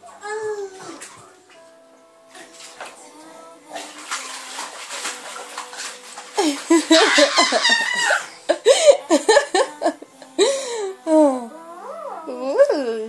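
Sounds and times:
water splashing in a paddling pool: 0.0 - 9.8
high-pitched laughter: 6.4 - 10.0.

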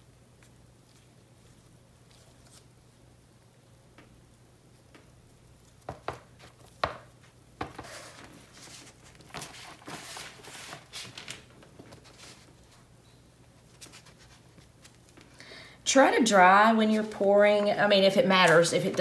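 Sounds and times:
canvas scraping across paper: 7.8 - 11.2.

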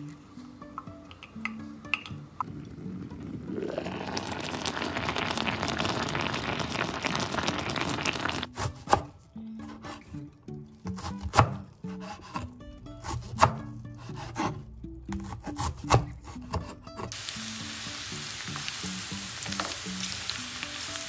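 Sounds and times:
soft background music: 0.0 - 5.3, 8.5 - 21.0
rice boiling and bubbling: 2.4 - 8.5, 17.1 - 21.0
knife chopping on wooden board: 11.0 - 13.6.

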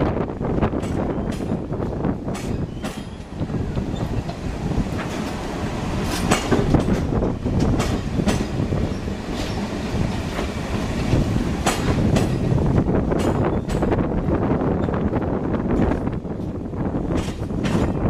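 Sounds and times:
subway train rumbling: 0.0 - 18.0
train wheel clacks: 0.6 - 14.2, 15.7 - 18.0.

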